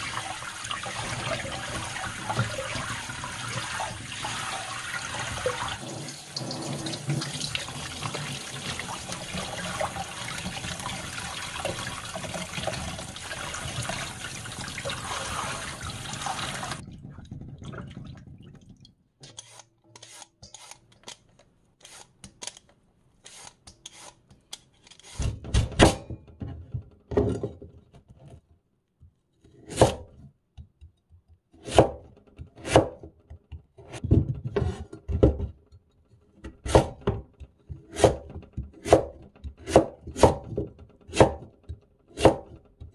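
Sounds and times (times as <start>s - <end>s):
tap water running into a sink: 0.0s - 18.8s
vegetable peeler scraping: 19.2s - 21.2s, 21.8s - 22.6s, 23.2s - 25.4s.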